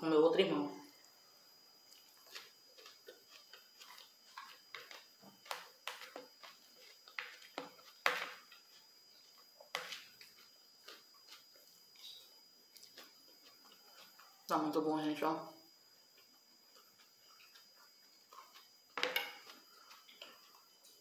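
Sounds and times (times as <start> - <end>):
cutlery tapping and scraping plate: 7.2 - 8.5, 19.0 - 19.6
chewing mouth clicks and smacks: 12.7 - 14.5, 16.1 - 18.8, 19.4 - 21.0.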